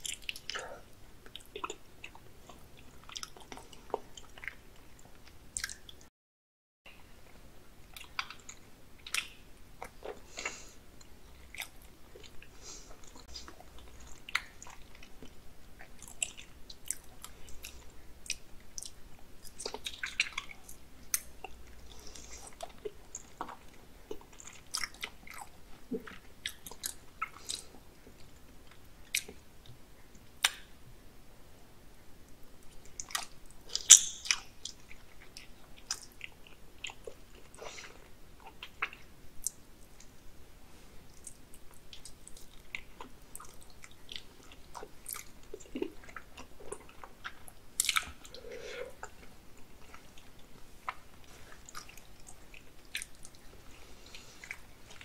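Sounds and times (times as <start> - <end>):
mouth clicks and smacks: 0.0 - 6.0, 30.4 - 30.7, 32.8 - 40.2, 41.1 - 55.0
person chewing: 0.0 - 6.0, 7.8 - 29.4, 32.8 - 40.1, 41.0 - 55.0.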